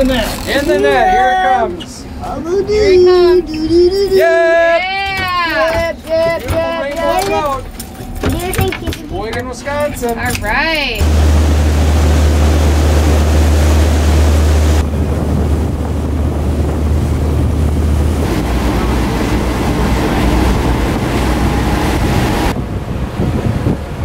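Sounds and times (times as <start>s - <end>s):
boat engine drone: 10.5s - 24.0s
wake water rushing: 11.0s - 24.0s
wind buffeting microphone: 11.0s - 24.0s.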